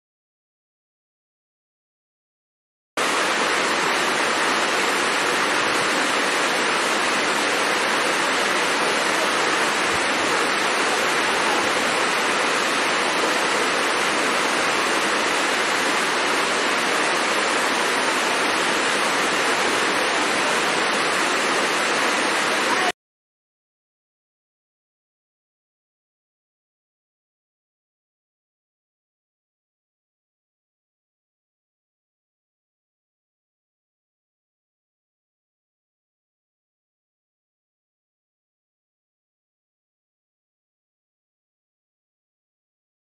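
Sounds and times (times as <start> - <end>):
waterfall rushing: 3.0 - 23.0.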